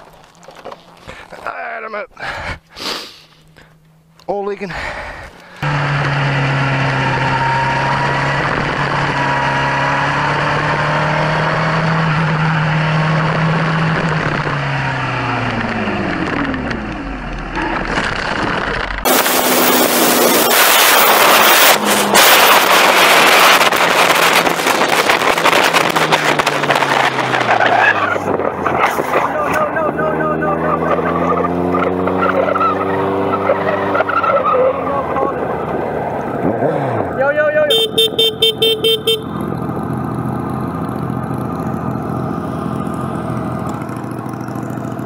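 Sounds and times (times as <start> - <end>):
motorcycle engine running: 37.7 - 45.0.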